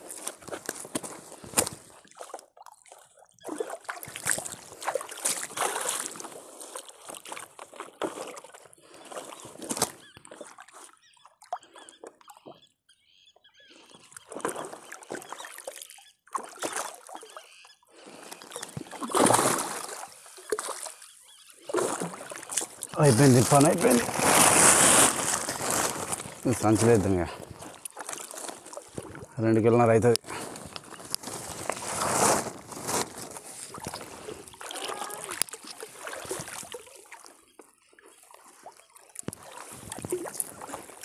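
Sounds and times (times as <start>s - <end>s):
water sloshing and splashing: 0.0s - 12.6s, 13.9s - 41.0s
net rustling: 23.0s - 26.9s, 30.3s - 35.3s.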